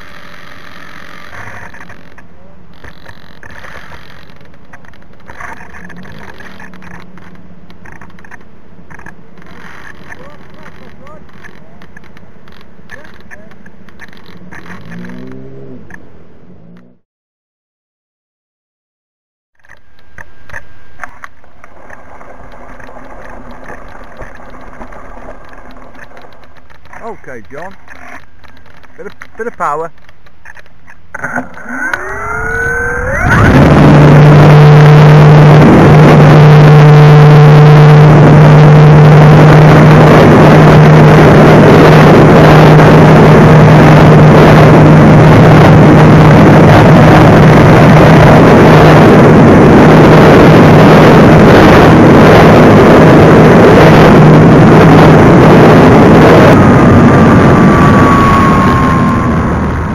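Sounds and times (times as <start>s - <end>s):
electric motor and propeller whine: 0.0s - 17.0s, 31.2s - 59.9s
air rushing over microphone: 32.3s - 59.9s.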